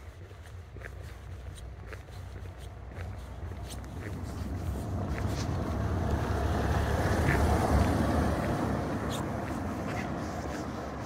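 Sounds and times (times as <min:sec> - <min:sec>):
car passing by: 0:03.4 - 0:11.0.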